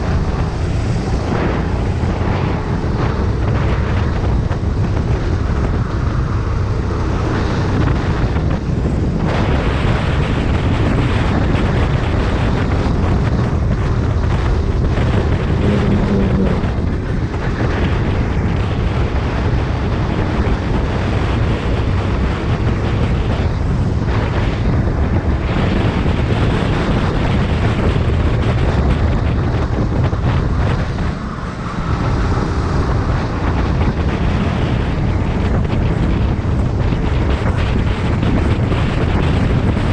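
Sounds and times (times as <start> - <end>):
go-kart engine racing: 0.0 - 39.9
wind buffeting microphone: 0.0 - 39.9.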